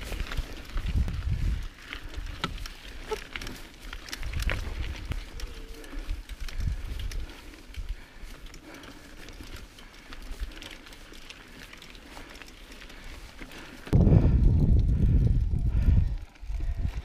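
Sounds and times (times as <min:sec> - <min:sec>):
wind gusting on microphone: 0:00.0 - 0:02.6, 0:13.9 - 0:17.0
bike rattling and clicking: 0:00.0 - 0:17.0
bike tyres rolling on dirt: 0:00.0 - 0:17.0.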